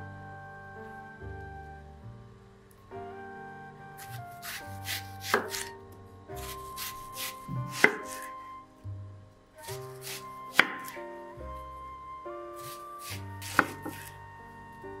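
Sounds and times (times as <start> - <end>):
knife slicing onion on board: 4.0 - 5.7, 6.4 - 8.4, 9.7 - 11.0, 12.6 - 14.2.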